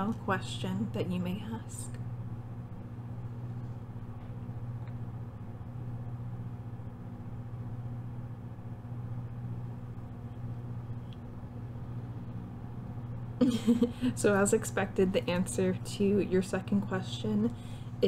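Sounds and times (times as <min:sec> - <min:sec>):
woman speaking: 0:00.0 - 0:02.0, 0:14.0 - 0:17.6
low machine hum: 0:00.0 - 0:18.0.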